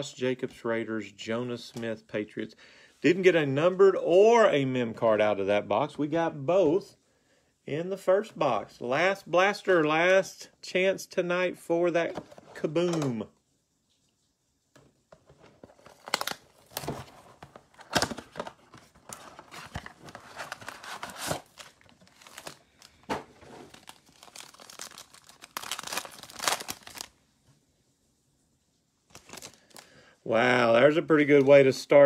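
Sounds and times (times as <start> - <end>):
foil packs crinkling: 15.4 - 27.2, 29.1 - 31.7
cardboard box tearing: 15.7 - 22.6.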